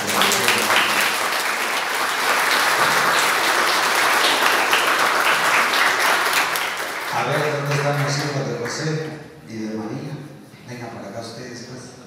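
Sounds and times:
crowd applause: 0:00.0 - 0:08.4.

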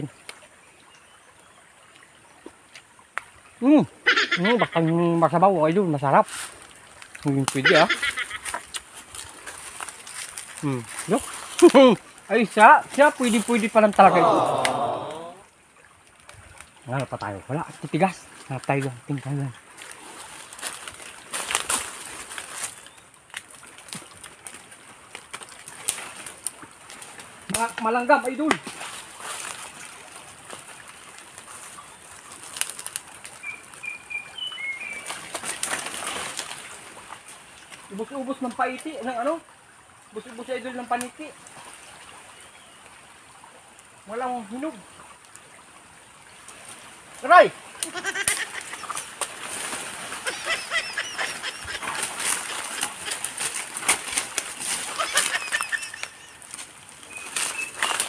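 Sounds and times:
leaves and branches rustling: 0:00.0 - 0:58.0
birds chirping: 0:03.4 - 0:06.2, 0:07.2 - 0:08.8, 0:33.4 - 0:35.7, 0:47.8 - 0:49.2, 0:50.1 - 0:53.6, 0:54.8 - 0:58.0
footsteps on leaf litter: 0:06.2 - 0:11.9, 0:19.8 - 0:24.2, 0:51.4 - 0:58.0
twigs snapping: 0:06.3 - 0:11.8, 0:19.8 - 0:29.7, 0:32.3 - 0:33.6, 0:34.9 - 0:36.7, 0:51.6 - 0:58.0.

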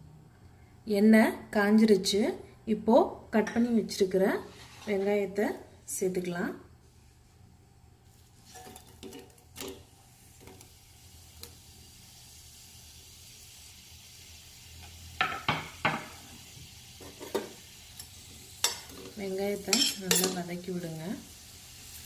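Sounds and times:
onions sizzling in oil: 0:08.0 - 0:22.0.

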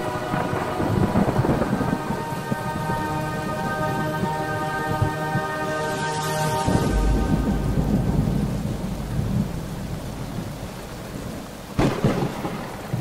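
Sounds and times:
sharp thunderclap: 0:00.0 - 0:03.2, 0:06.7 - 0:13.0
rolling thunder rumble: 0:00.0 - 0:13.0
steady rain: 0:00.0 - 0:13.0.

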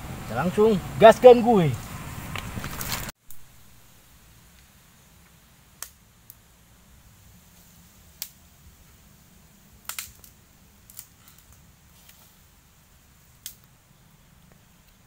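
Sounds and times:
dry sticks snapping: 0:05.8 - 0:06.4, 0:09.8 - 0:12.2, 0:13.4 - 0:13.7.

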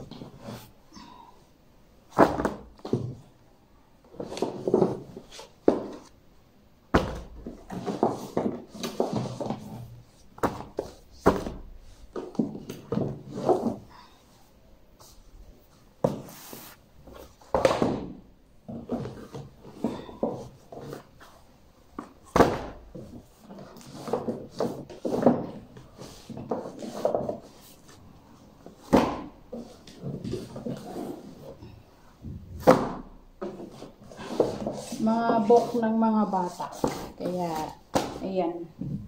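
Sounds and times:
books thudding on wood: 0:02.1 - 0:03.2, 0:06.9 - 0:09.6, 0:10.4 - 0:13.2, 0:17.5 - 0:19.2, 0:22.0 - 0:23.2, 0:28.8 - 0:29.4, 0:32.2 - 0:33.6
rustling of book covers: 0:18.6 - 0:31.6.

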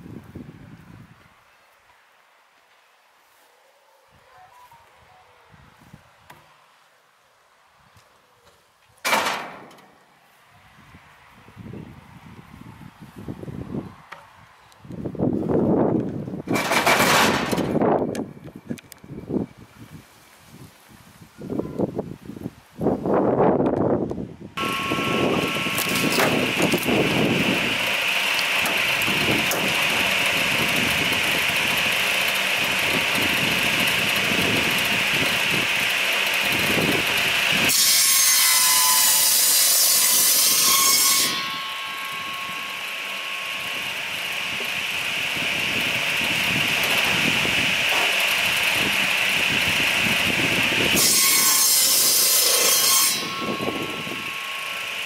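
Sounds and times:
electric saw whining: 0:24.6 - 0:55.0
saw cutting through log: 0:24.6 - 0:55.0.

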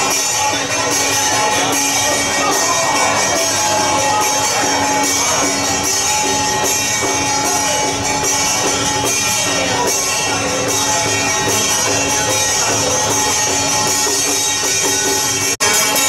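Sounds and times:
crowd and street noise: 0:00.0 - 0:16.0
steady held tones: 0:00.0 - 0:16.0.

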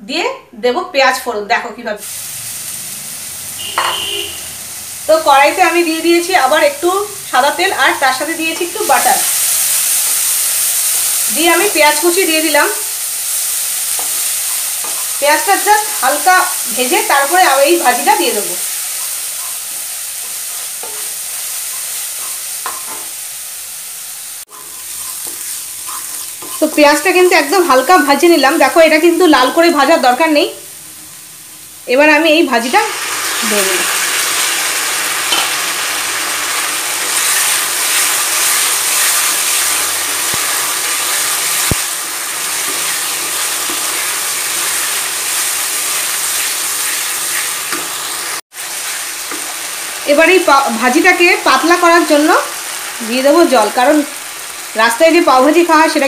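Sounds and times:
onion sizzling in oil: 0:01.2 - 0:56.0
wooden spatula scraping a pan: 0:24.5 - 0:27.0.

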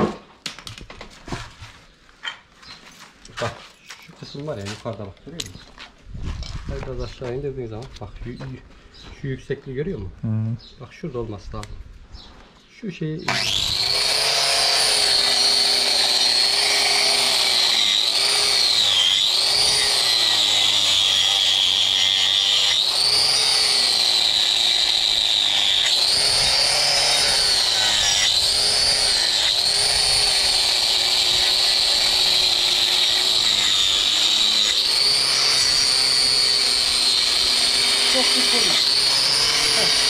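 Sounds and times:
angle grinder whining on hoof: 0:13.3 - 0:40.0.

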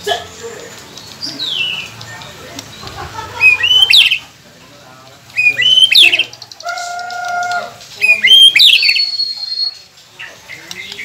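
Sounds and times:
bird singing whistled notes: 0:05.4 - 0:06.8, 0:08.0 - 0:09.9.

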